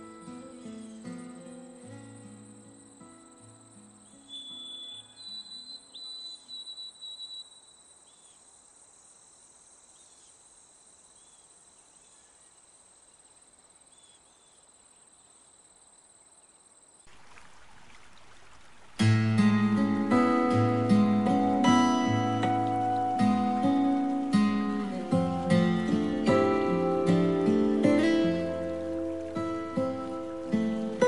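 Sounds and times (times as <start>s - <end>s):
guitar music: 0.0s - 5.1s, 19.0s - 31.0s
steady hiss: 0.0s - 6.7s, 7.3s - 31.0s
background music: 19.1s - 31.0s.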